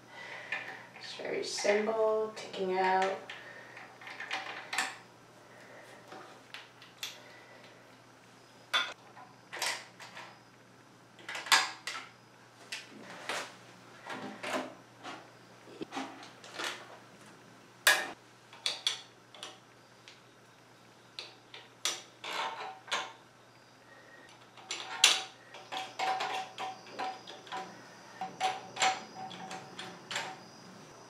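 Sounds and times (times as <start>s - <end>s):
plastic parts clicking and knocking: 2.9s - 5.0s, 11.2s - 12.1s, 17.9s - 19.6s, 24.3s - 30.4s.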